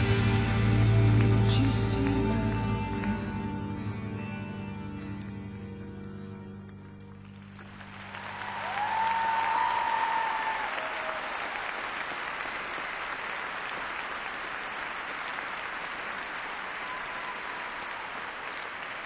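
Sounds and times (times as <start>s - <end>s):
audience applauding: 7.0s - 19.0s.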